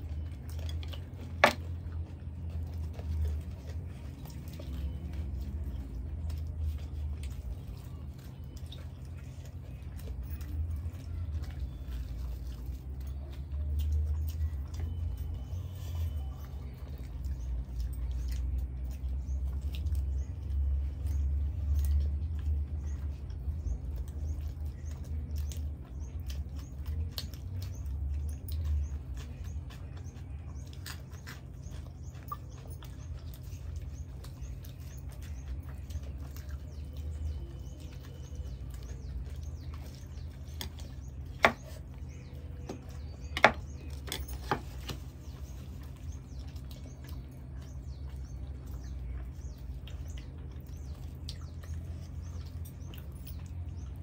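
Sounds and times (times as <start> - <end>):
wet chewing mouth clicks: 0.0 - 54.0.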